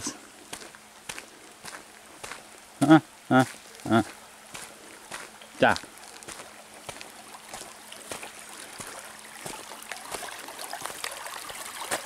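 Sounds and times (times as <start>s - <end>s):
stream water trickling: 0.0s - 12.0s.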